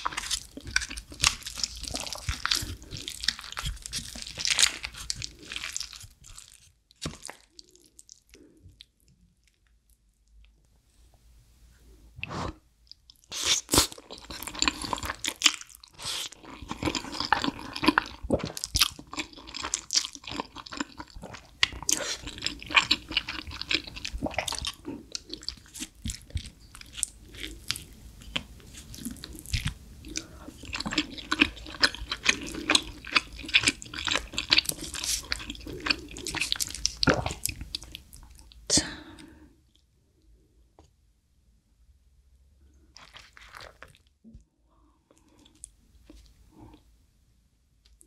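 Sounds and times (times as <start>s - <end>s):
chewing spaghetti: 0.0s - 10.0s, 12.9s - 38.6s, 42.9s - 44.1s.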